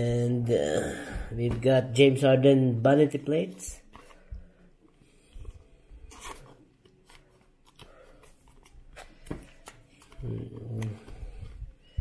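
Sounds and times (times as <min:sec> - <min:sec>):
trading cards being shuffled: 0:06.0 - 0:11.6.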